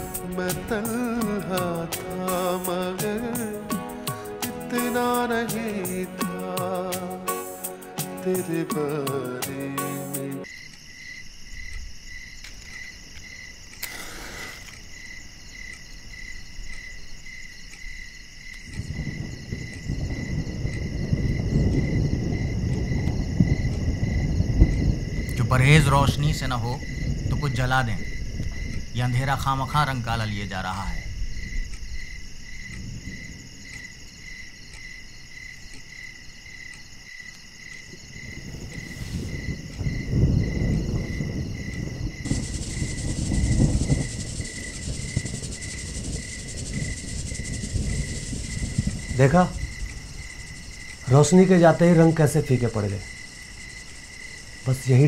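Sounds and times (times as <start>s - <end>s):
crickets chirping: 0.0s - 55.0s
match striking and hissing: 13.8s - 14.9s
low rumble: 38.4s - 51.0s.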